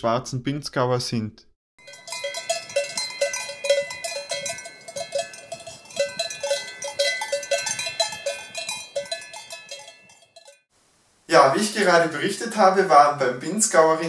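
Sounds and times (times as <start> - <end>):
cowbell clanging: 1.8 - 10.7.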